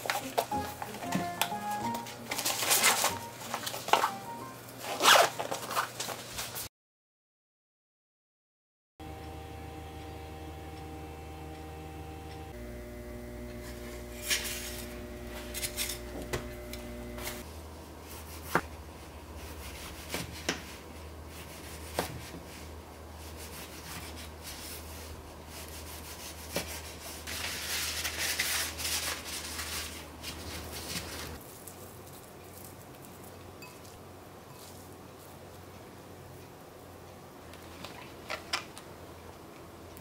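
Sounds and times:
low steady hum: 0:09.0 - 0:20.0
scraping and rubbing: 0:23.2 - 0:31.4.

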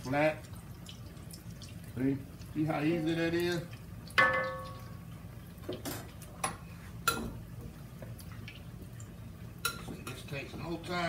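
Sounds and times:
dishware clicks and taps: 0:04.2 - 0:04.8
utensil clinking on dish: 0:04.2 - 0:04.9.

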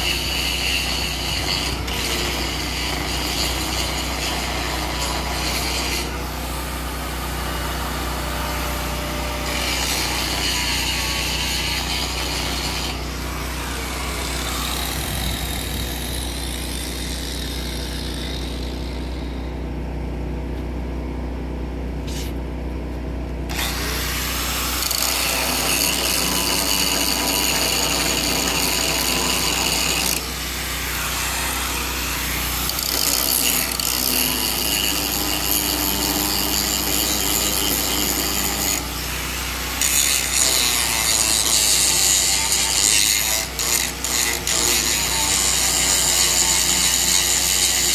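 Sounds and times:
tool scraping rusty steel: 0:00.0 - 0:19.6, 0:23.5 - 0:47.9
steady low hum: 0:03.8 - 0:27.0.

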